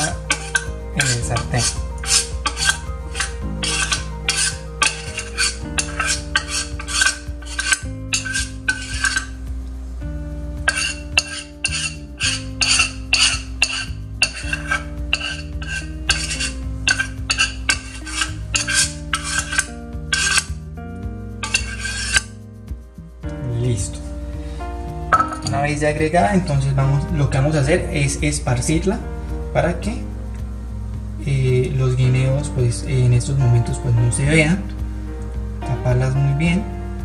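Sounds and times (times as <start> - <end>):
metal spoon scraping a pot: 0.0 - 9.4, 10.6 - 20.6, 21.4 - 22.4, 25.1 - 25.6
background music with a beat: 0.0 - 37.0.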